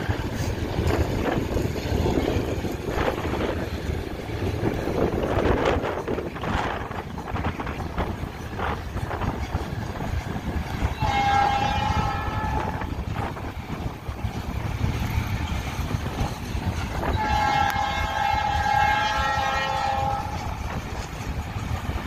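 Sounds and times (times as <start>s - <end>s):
freight train rolling rumble: 0.0s - 22.0s
locomotive horn blasts: 10.9s - 12.9s, 17.0s - 20.6s.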